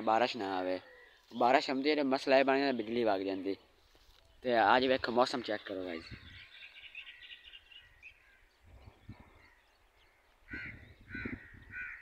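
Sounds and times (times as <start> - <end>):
crow cawing: 0.8 - 1.2, 9.4 - 12.0
faint bird chirps: 5.5 - 12.0.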